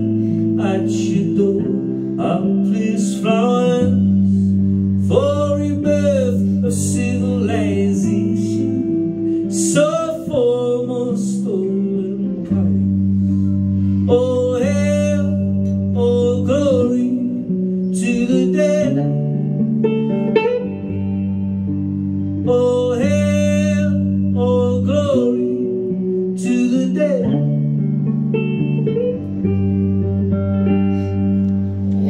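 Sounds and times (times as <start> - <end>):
man singing: 0.0 - 13.2, 14.0 - 19.6, 22.4 - 27.8
guitar chords: 0.0 - 32.0.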